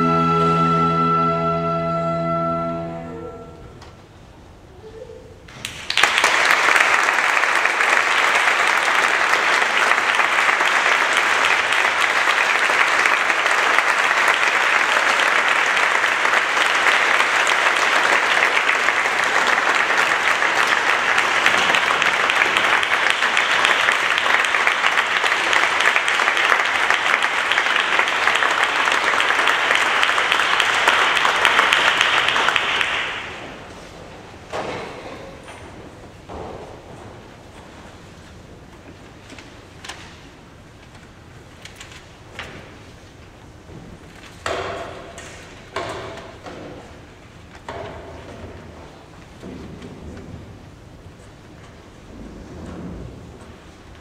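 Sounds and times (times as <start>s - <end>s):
audience applauding: 5.5s - 33.7s.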